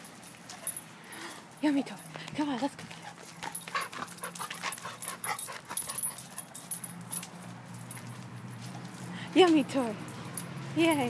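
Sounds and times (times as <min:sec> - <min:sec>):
dog noises and chew bone clicks: 0:02.1 - 0:10.6.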